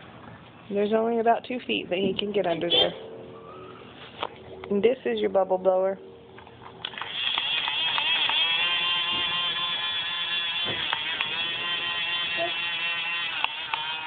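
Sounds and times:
small electric motor whining: 6.8s - 14.0s.

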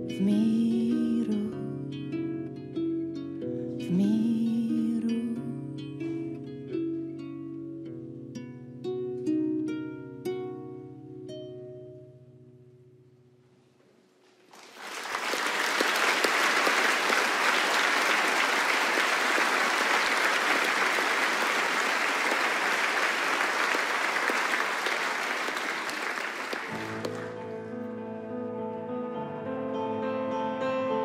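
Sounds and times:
audience applauding: 14.5s - 27.5s
plucked strings: 26.7s - 28.6s.

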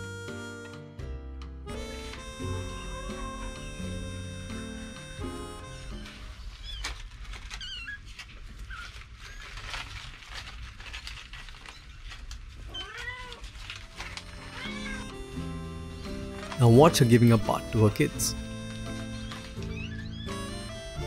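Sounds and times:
kittens mewing: 1.9s - 9.8s, 11.6s - 15.5s, 18.4s - 21.0s
newspaper rustling: 5.6s - 20.7s.

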